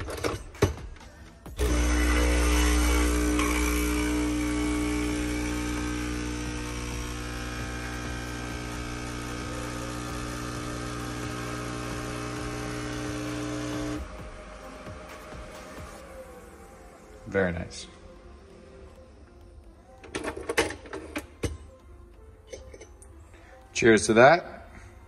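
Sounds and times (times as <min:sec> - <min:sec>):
espresso machine pump buzzing: 0:01.6 - 0:14.2.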